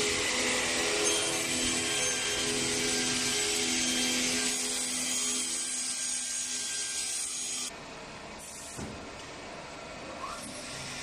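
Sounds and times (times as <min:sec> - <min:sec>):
circular saw cutting wood: 0:00.0 - 0:07.7.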